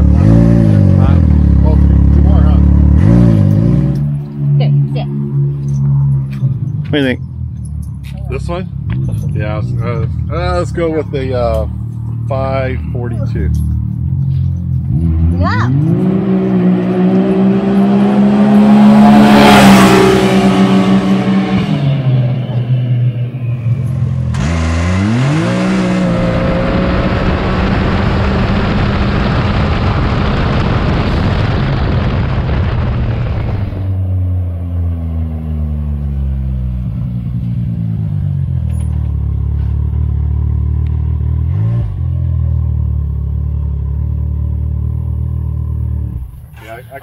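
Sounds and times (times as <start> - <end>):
engine revving at full throttle: 0.0 - 5.3, 14.9 - 22.5, 24.2 - 33.9.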